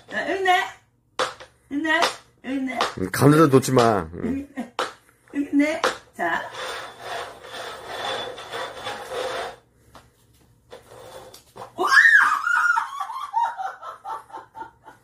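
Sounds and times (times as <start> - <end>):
woman laughing: 11.8 - 15.0.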